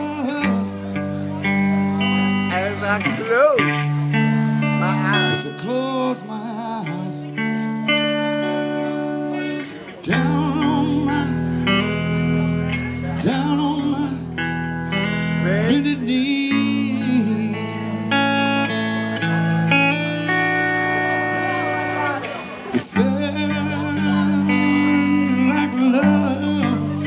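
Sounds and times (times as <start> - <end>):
man singing: 0.0 - 1.4, 4.8 - 7.8, 9.6 - 18.7, 22.7 - 27.0
electric guitar: 0.0 - 27.0
low bass notes: 0.0 - 27.0.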